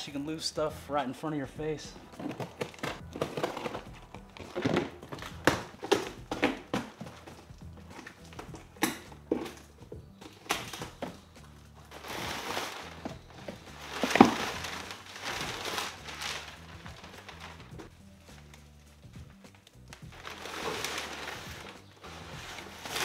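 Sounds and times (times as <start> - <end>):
paper and plastic wrap rustling: 10.3 - 18.7, 20.0 - 23.0.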